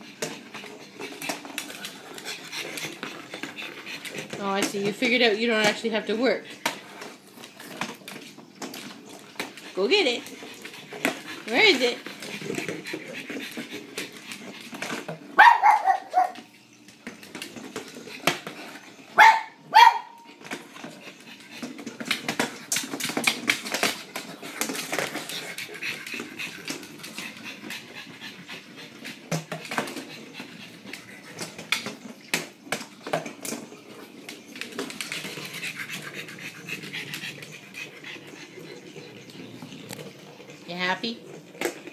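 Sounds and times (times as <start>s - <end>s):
dog panting: 0.0s - 7.2s, 9.2s - 16.2s, 20.2s - 31.9s, 34.8s - 40.7s
dog barking: 15.4s - 16.4s, 19.2s - 20.2s.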